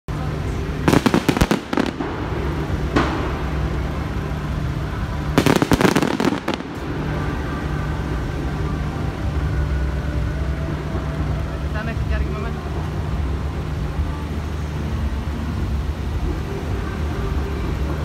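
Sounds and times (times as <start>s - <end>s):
low rumble: 0.1s - 18.0s
fireworks bangs: 0.7s - 8.2s.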